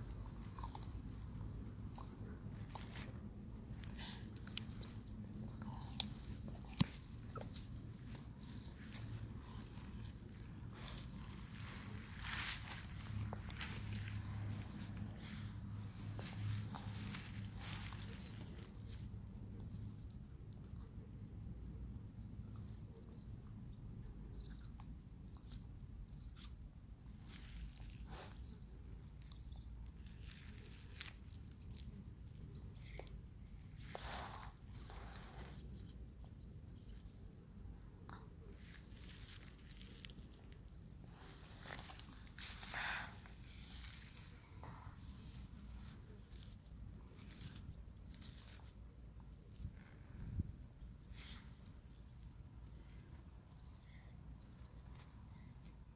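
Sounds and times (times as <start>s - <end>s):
tortoise chewing crunches: 0.0s - 21.1s, 22.1s - 55.9s
steady low hum: 0.0s - 24.4s.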